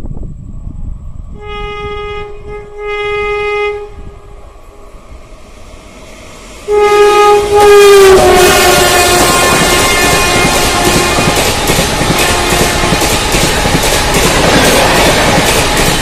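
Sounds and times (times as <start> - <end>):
locomotive horn blasts: 1.4 - 4.4, 6.6 - 11.4, 12.1 - 13.1
train rushing and clattering: 4.1 - 16.0.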